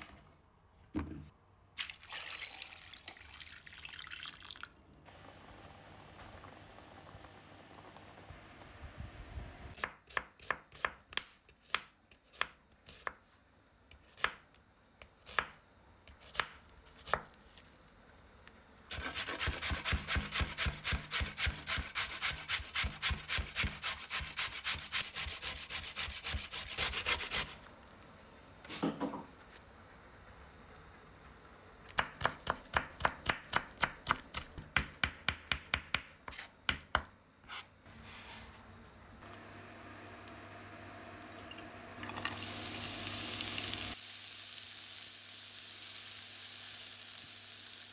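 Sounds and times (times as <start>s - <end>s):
water boiling in a pot: 1.8s - 9.0s, 39.2s - 47.9s
knife on wooden cutting board: 36.3s - 36.5s, 37.4s - 37.7s.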